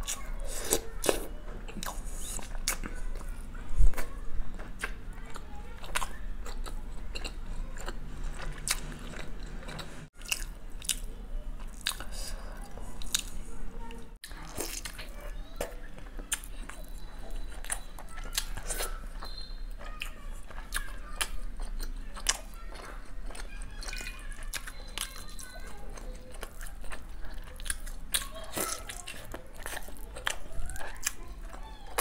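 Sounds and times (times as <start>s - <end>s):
mouth chewing food: 0.0s - 32.0s.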